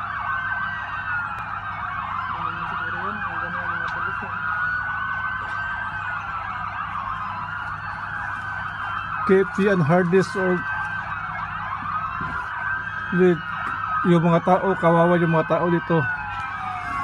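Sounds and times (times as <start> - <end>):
emergency vehicle sirens wailing: 0.0 - 17.0.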